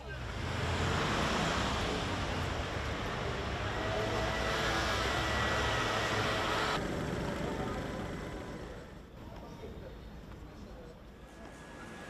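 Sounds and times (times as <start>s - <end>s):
low traffic rumble: 0.0s - 9.4s
background noise: 0.0s - 12.0s.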